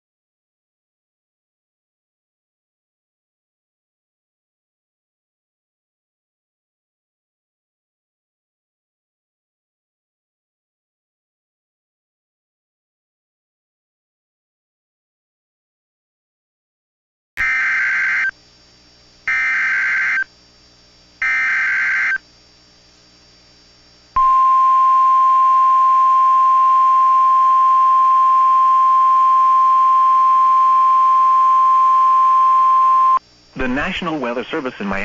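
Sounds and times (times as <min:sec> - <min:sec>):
steady warning alarm tone: 0:17.4 - 0:18.4, 0:19.3 - 0:20.3, 0:21.2 - 0:22.2, 0:24.2 - 0:33.2.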